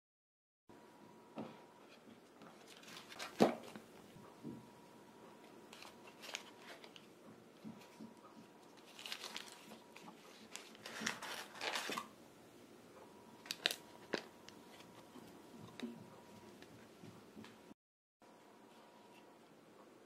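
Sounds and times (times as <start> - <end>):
paper and cardboard rustling: 1.8 - 4.0, 5.7 - 12.1.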